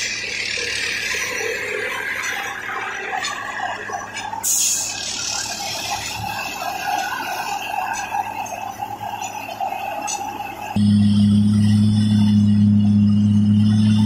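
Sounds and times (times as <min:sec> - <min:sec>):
machine high whine: 0:00.0 - 0:14.0
low steady hum: 0:10.8 - 0:14.0.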